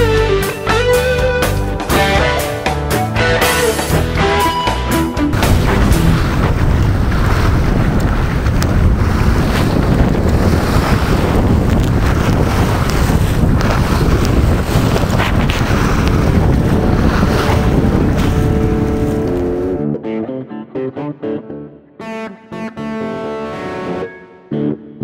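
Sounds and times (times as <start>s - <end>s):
water splashing along hull: 3.4s - 19.8s
wind buffeting microphone: 5.3s - 19.8s.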